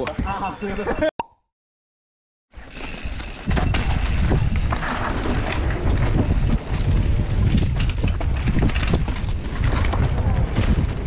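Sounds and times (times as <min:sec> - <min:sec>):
mountain bike rumble and clatter: 0:02.5 - 0:11.0
wind buffeting microphone: 0:03.4 - 0:11.0.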